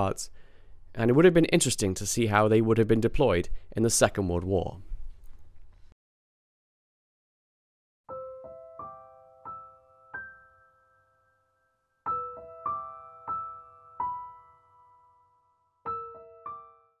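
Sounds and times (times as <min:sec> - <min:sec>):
soft solo piano: 0:08.1 - 0:11.4, 0:12.1 - 0:15.3, 0:15.9 - 0:17.0.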